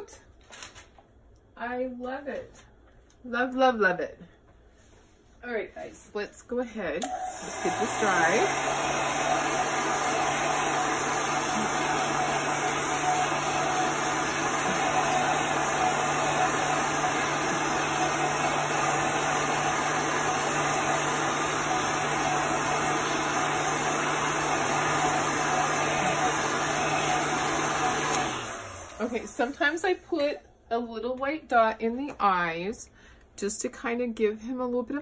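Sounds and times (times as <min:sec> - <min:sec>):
blow dryer running: 0:07.0 - 0:30.4.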